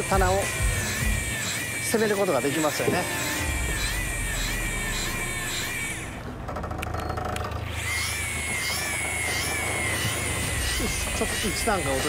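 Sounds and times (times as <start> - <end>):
fishing reel motor whining: 0.0 - 12.0
low rumble: 3.4 - 6.7.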